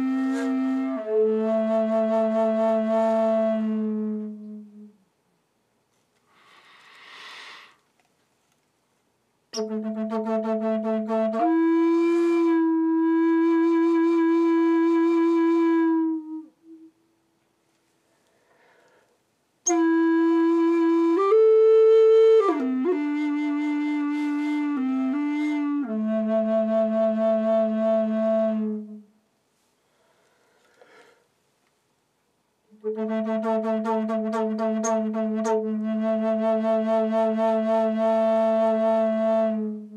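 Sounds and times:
wooden flute playing slowly: 0:00.0 - 0:05.1, 0:09.6 - 0:17.2, 0:19.6 - 0:29.2, 0:32.7 - 0:39.9.

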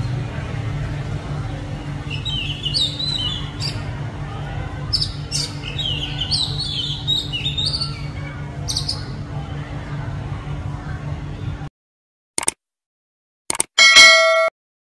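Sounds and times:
steady low hum: 0:00.0 - 0:11.7.

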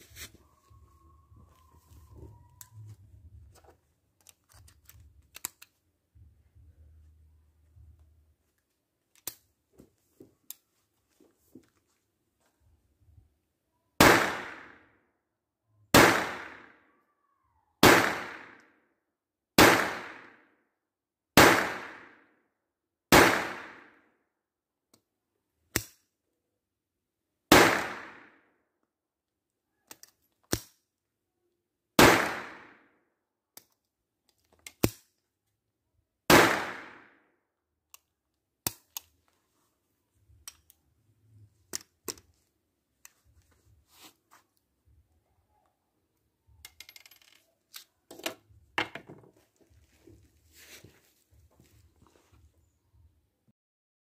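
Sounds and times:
pistol shots echoing: 0:14.0 - 0:14.7, 0:15.9 - 0:16.7, 0:17.8 - 0:18.6, 0:19.6 - 0:20.4, 0:21.4 - 0:22.1, 0:23.1 - 0:23.9, 0:27.5 - 0:28.3, 0:32.0 - 0:32.7, 0:36.3 - 0:37.1.

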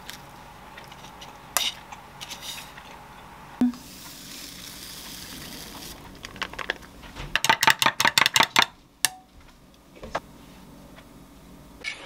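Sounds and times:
powder pouring with soft hiss: 0:03.9 - 0:06.6.

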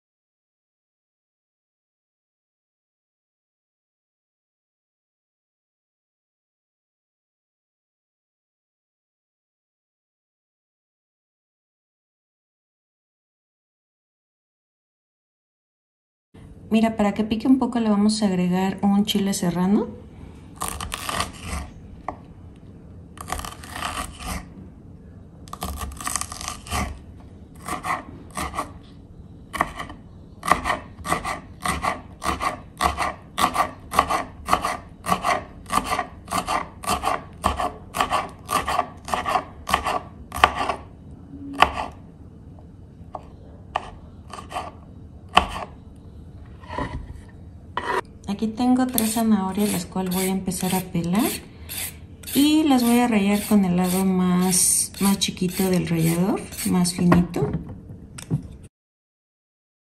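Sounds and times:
knife chopping on wooden board: 0:29.6 - 0:40.8, 0:45.4 - 0:45.7.

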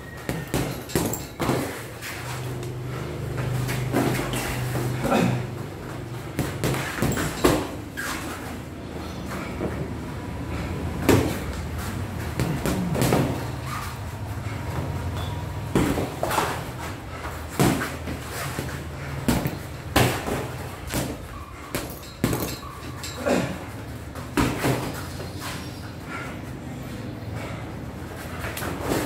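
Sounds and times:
boxing gloves thudding: 0:00.1 - 0:02.0, 0:06.2 - 0:08.3, 0:11.0 - 0:13.6, 0:15.7 - 0:16.8, 0:17.4 - 0:22.6, 0:24.2 - 0:25.1.

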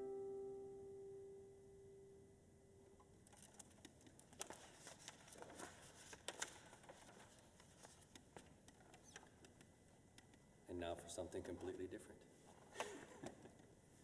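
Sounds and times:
guitar note ringing: 0:00.0 - 0:03.0
sheet music pages turning: 0:03.3 - 0:09.7.

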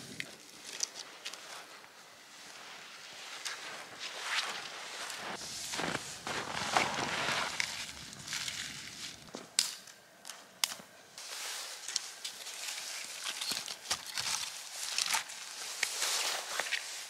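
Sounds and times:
snow crunching: 0:01.4 - 0:09.4.

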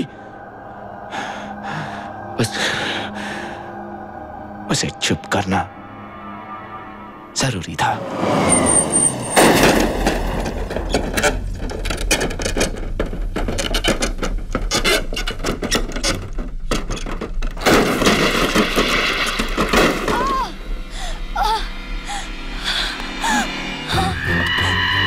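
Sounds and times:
loud crashing: 0:08.1 - 0:13.4, 0:17.6 - 0:24.1
metal crunches and scraping: 0:09.2 - 0:20.4
tyre squeal: 0:23.2 - 0:25.0.

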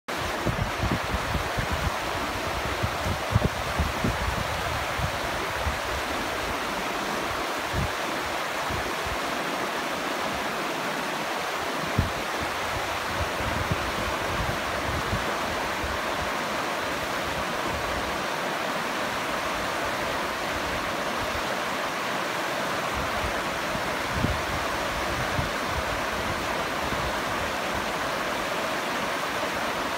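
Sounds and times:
river rushing over rocks: 0:00.1 - 0:29.9.

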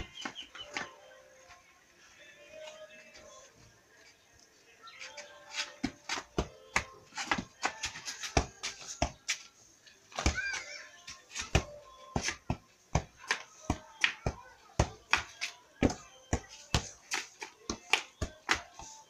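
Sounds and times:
football thuds from kicks: 0:11.4 - 0:15.2.

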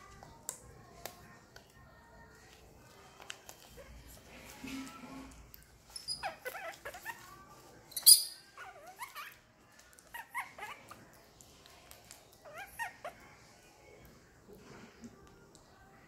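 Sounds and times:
baby macaque squeaky cries: 0:06.0 - 0:07.3, 0:07.9 - 0:09.4, 0:10.0 - 0:11.0, 0:12.4 - 0:13.2.

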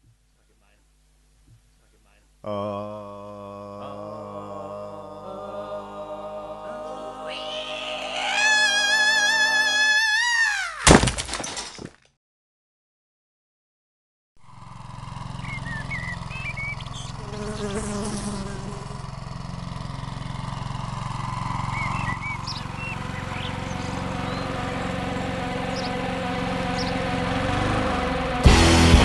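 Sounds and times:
short bird chirps: 0:15.4 - 0:17.2
flies and insects buzzing: 0:16.9 - 0:19.8
loud rock band: 0:28.4 - 0:29.0.

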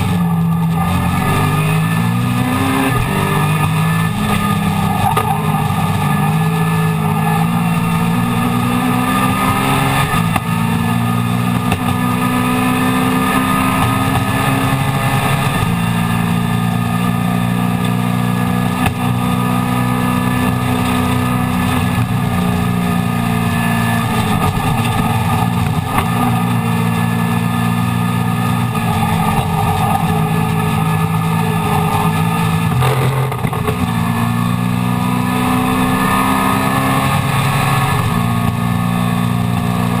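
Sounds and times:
race car engine at high revs: 0:00.0 - 0:40.0.

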